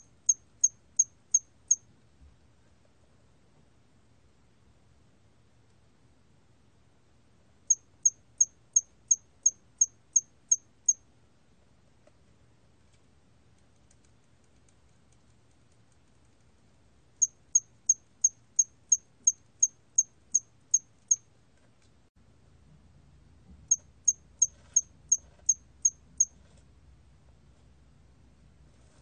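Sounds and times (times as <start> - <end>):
cricket chirping: 0.0 - 1.8, 7.7 - 11.0, 17.2 - 21.2.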